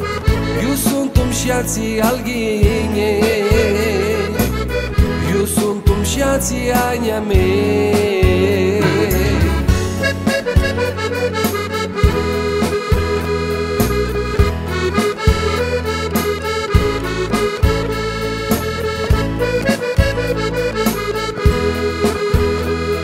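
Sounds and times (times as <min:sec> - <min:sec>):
accordion melody: 0:00.0 - 0:23.0
bass line: 0:00.0 - 0:23.0
steady beat: 0:08.7 - 0:13.4, 0:14.4 - 0:22.5.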